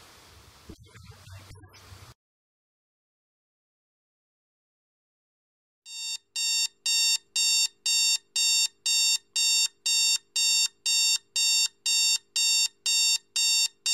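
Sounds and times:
alarm clock beeping: 5.9s - 13.9s.

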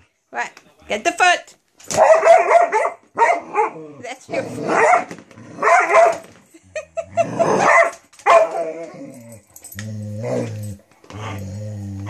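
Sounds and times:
dog barking: 2.0s - 3.8s, 4.7s - 6.2s, 7.6s - 8.7s
dog growling: 3.4s - 5.7s, 6.8s - 7.7s, 8.6s - 12.0s.

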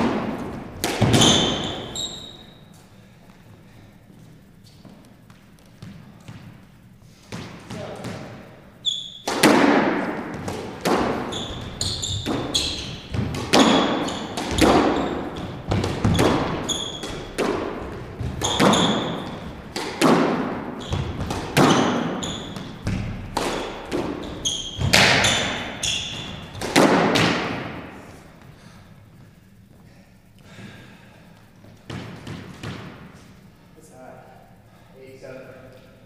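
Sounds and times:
squash ball hits echoing: 0.0s - 2.6s, 4.8s - 28.7s, 31.7s - 33.4s
sneakers squeaking on hardwood: 0.0s - 2.9s, 4.1s - 28.5s.

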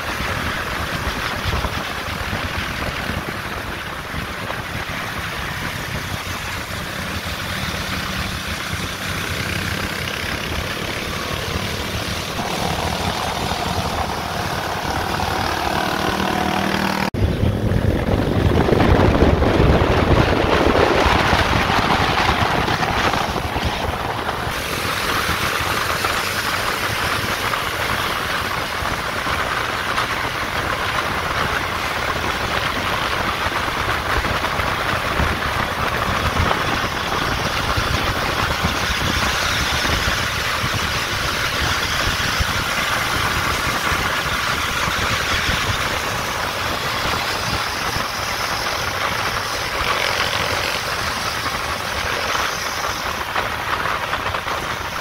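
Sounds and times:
road and wind noise: 0.0s - 55.0s
vehicle engine running: 0.0s - 55.0s.

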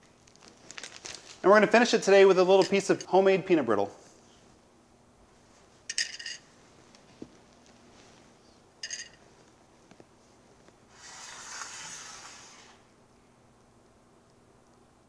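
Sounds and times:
soft scraping rustle: 6.5s - 8.6s, 9.2s - 12.9s.

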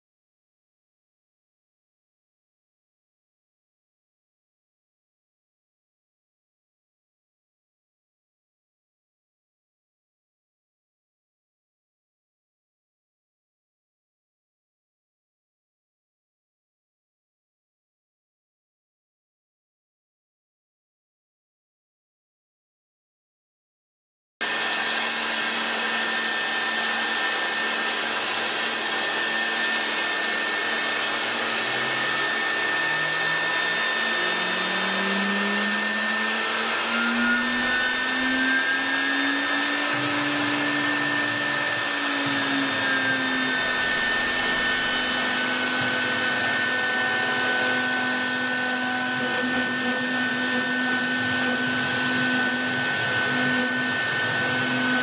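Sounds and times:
electric spindle whine: 24.4s - 55.0s.

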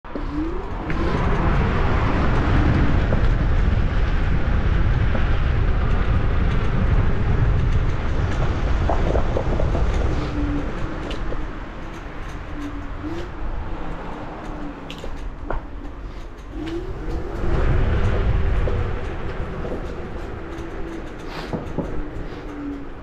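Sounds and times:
road rumble: 0.0s - 23.0s
wind buffeting microphone: 0.0s - 23.0s
electric motor whine: 16.5s - 23.0s.

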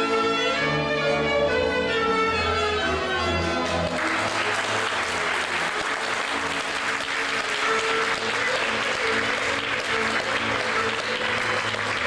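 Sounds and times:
folk string band with fiddle: 0.0s - 12.0s
audience applause: 3.6s - 12.0s.

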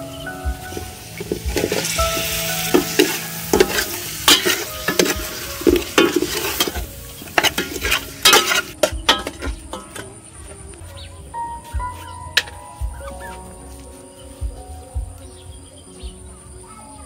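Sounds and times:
fish sizzling in hot oil: 0.5s - 9.3s
metal ladle scraping and clinking: 0.7s - 10.2s.

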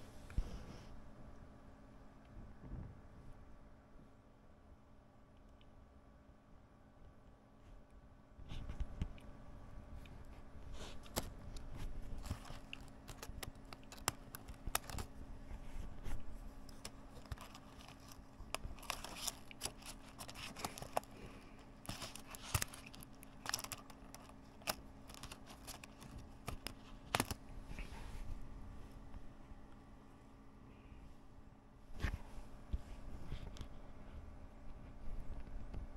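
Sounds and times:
membrane film tearing and crinkling: 11.0s - 15.1s, 16.7s - 27.4s
plastic keycaps snapping and clicking: 12.2s - 15.1s, 16.7s - 21.1s, 21.8s - 27.4s.

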